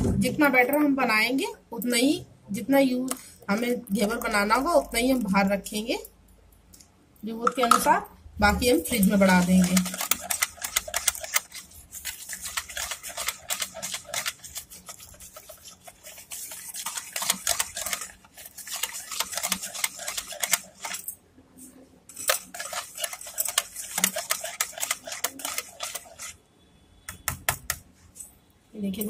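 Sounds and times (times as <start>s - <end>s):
whisk beating batter in bowl: 8.6s - 21.2s, 22.1s - 26.4s.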